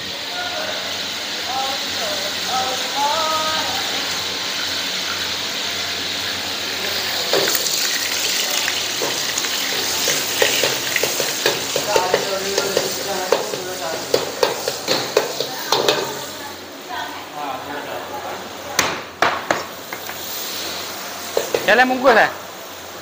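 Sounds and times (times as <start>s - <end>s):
food sizzling in a wok: 0.0s - 18.8s, 19.4s - 23.0s
utensil scraping a wok: 6.9s - 16.4s.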